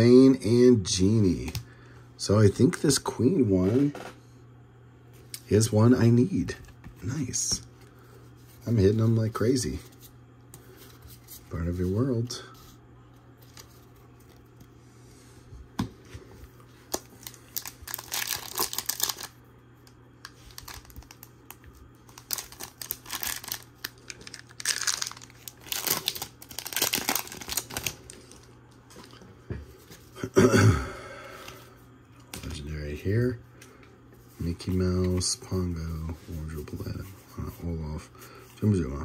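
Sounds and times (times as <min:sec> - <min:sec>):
foil wrapper tearing and crinkling: 0:16.9 - 0:19.4, 0:20.3 - 0:28.5.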